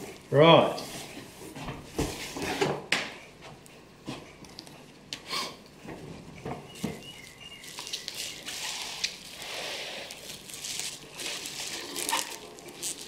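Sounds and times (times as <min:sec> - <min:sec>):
rustling: 0:06.0 - 0:13.0.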